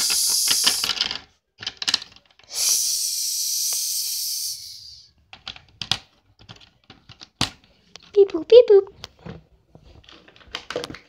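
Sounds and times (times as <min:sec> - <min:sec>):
long mouth hiss: 0:00.0 - 0:00.9, 0:02.5 - 0:05.1
short mouth noises: 0:02.5 - 0:05.0.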